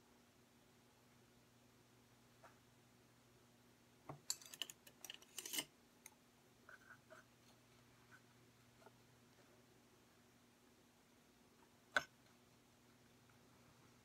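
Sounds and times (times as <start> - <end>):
low steady hum: 0.0 - 14.0
small objects clicking and scraping: 4.3 - 5.7.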